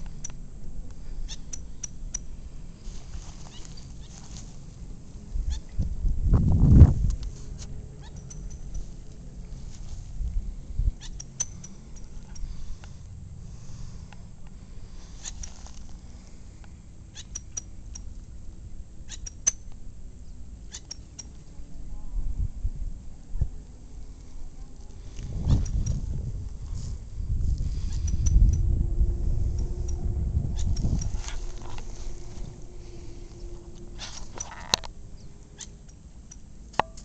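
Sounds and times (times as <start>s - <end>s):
wind rumble on microphone: 0.0s - 16.8s, 21.4s - 35.4s
high-pitched bird chips: 1.2s - 2.2s, 8.0s - 8.8s, 11.0s - 12.1s, 15.1s - 15.6s, 19.1s - 19.6s, 20.7s - 21.4s
footsteps crunching on gravel: 2.8s - 4.8s.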